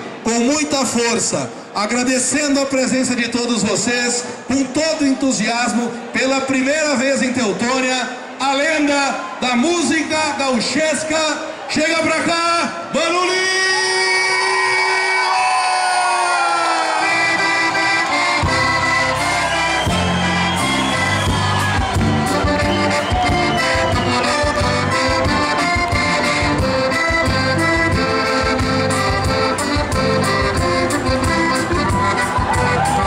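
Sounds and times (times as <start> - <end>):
accordion: 16.9 - 33.0
bass line: 17.1 - 33.0
steady beat: 17.4 - 33.0.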